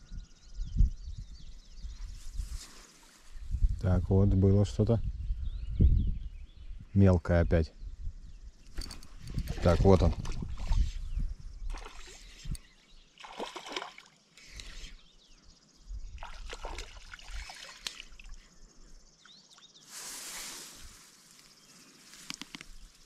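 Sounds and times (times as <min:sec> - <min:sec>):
water splashing and trickling: 0:08.8 - 0:11.1, 0:11.7 - 0:15.0, 0:16.2 - 0:18.5.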